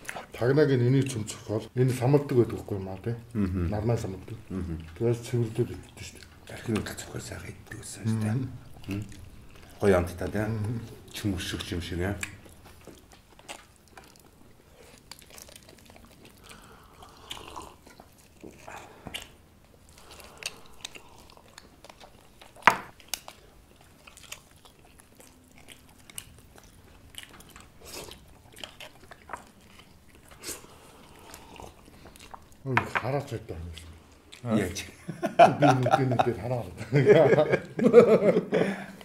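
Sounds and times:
close chewing and biting: 0.0s - 34.9s.

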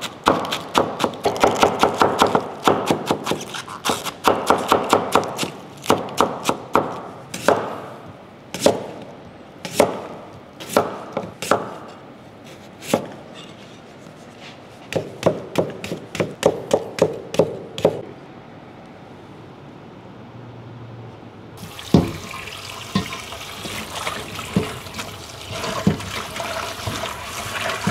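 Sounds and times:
knife chopping on wooden board: 0.2s - 3.5s, 14.9s - 18.0s.

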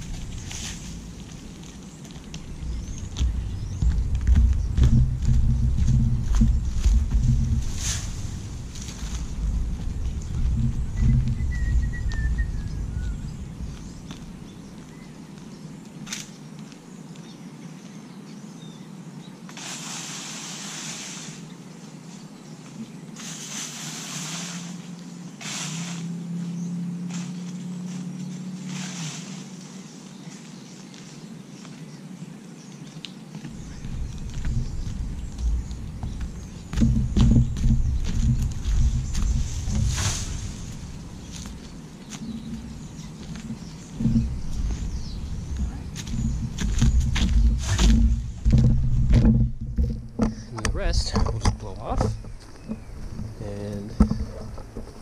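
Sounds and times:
low hum: 0.0s - 15.7s, 33.4s - 55.0s
wind buffeting microphone: 0.0s - 15.7s, 33.4s - 55.0s
falling bird chirp: 0.0s - 16.6s, 32.7s - 49.4s
short rushing noises: 3.1s - 12.7s, 23.2s - 26.1s, 28.6s - 29.6s, 33.5s - 50.9s.

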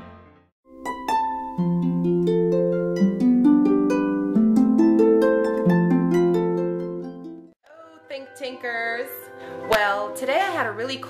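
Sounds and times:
harp plucked notes: 0.7s - 7.6s.

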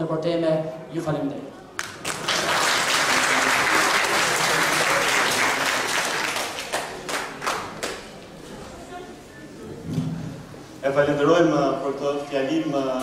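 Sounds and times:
audience applauding: 1.8s - 8.1s.

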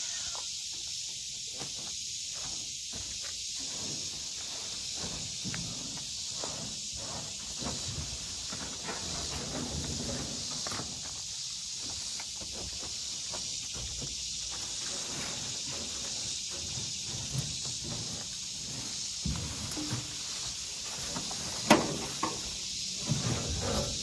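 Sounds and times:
high-pitched insect drone: 0.0s - 8.8s.

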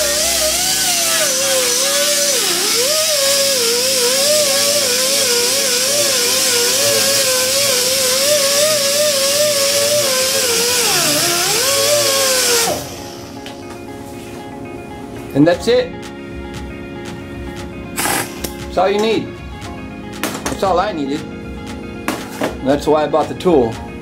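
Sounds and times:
pneumatic grinder on steel: 0.0s - 13.4s, 18.0s - 18.5s.

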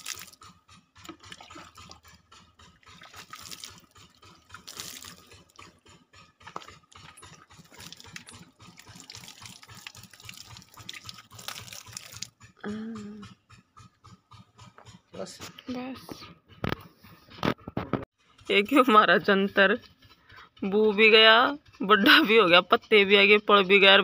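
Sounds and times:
water trickling and splashing: 0.0s - 5.8s, 6.4s - 12.4s.

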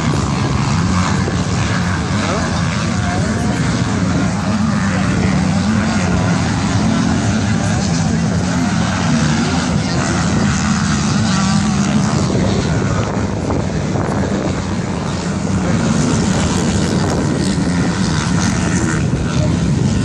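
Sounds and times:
distant motocross engines revving: 0.0s - 20.0s.

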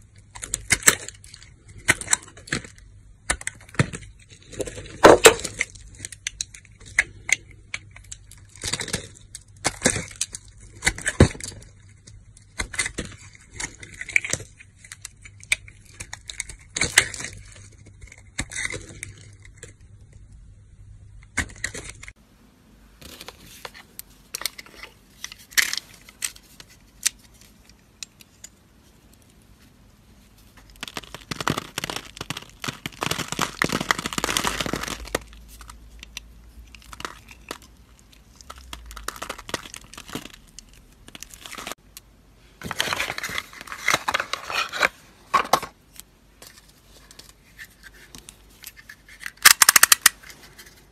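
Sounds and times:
blade cutting soap crackling: 0.2s - 20.0s, 30.6s - 41.8s.

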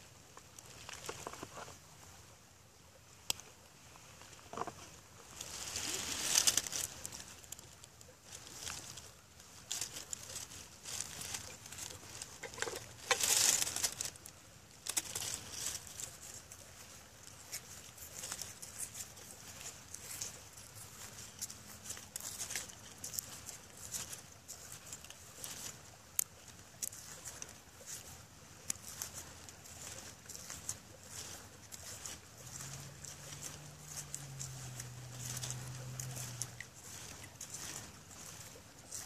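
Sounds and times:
hands rustling dry leaves: 0.0s - 2.3s, 3.0s - 39.0s
bag rustling: 8.3s - 14.2s.

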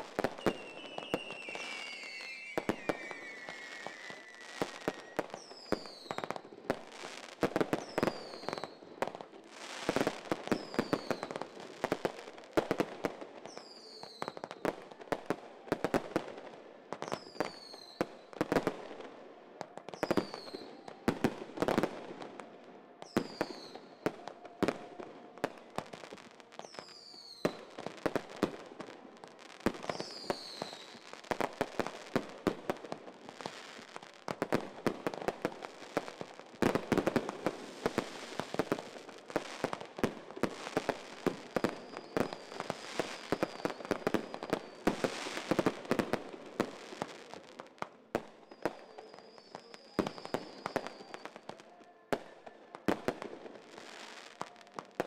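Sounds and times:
fireworks bangs and crackling: 0.0s - 55.0s
high falling whistles: 0.4s - 6.1s.

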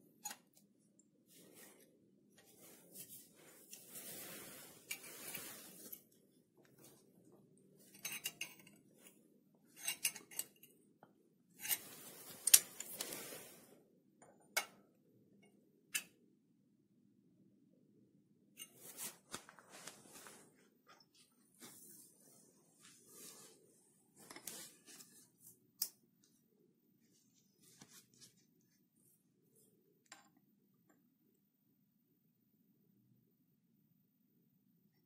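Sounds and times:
gloves rustling and scraping: 0.0s - 10.8s, 11.5s - 13.9s, 18.6s - 29.8s
metal parts clinking: 9.8s - 10.6s.

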